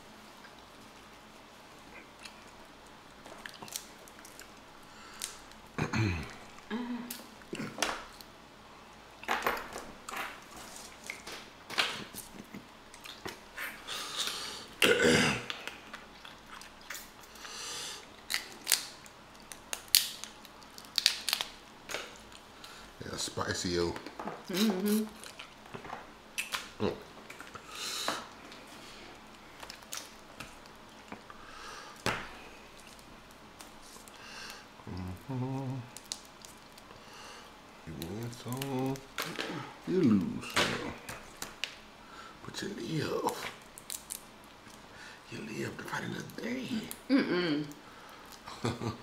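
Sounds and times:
shells cracking and snapping: 2.2 - 8.4, 14.2 - 22.8, 25.1 - 28.6, 29.2 - 34.6, 35.4 - 37.1, 37.9 - 39.6, 40.5 - 41.9, 43.2 - 44.9, 47.7 - 48.8.

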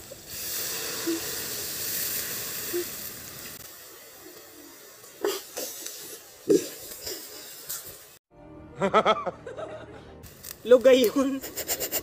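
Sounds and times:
water hissing in a hot wok: 0.0 - 8.2.

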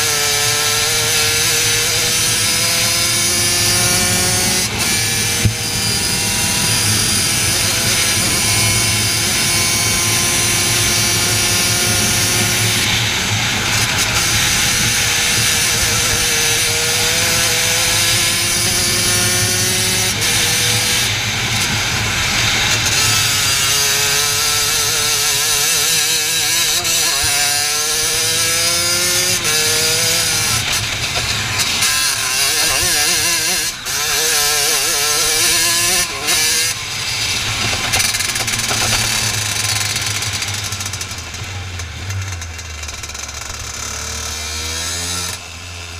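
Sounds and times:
kart engine revving: 0.0 - 45.9.

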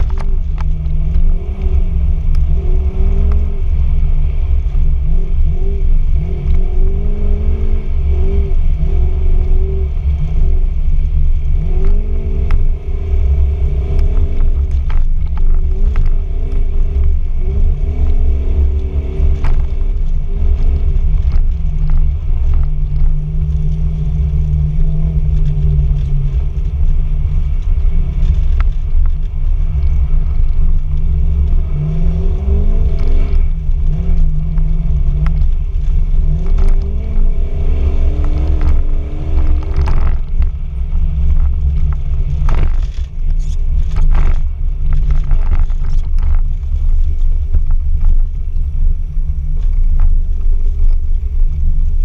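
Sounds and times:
car engine revving: 0.0 - 52.0
heavy low rumble: 0.0 - 52.0.

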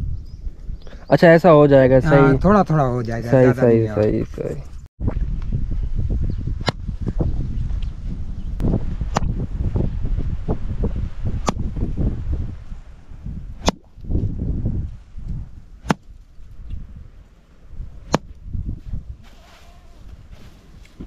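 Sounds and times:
stick whacking crop: 9.1 - 9.3, 13.6 - 13.9, 15.8 - 16.1, 18.1 - 18.3.

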